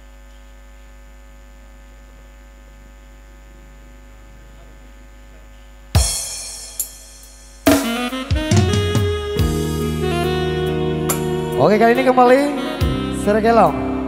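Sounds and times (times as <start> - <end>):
electrical mains hum: 0.0 - 14.0
drum and cymbal crash: 6.0 - 10.0.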